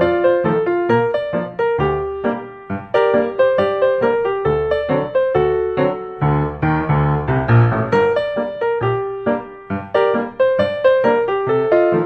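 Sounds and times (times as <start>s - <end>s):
piano music: 0.0s - 12.0s.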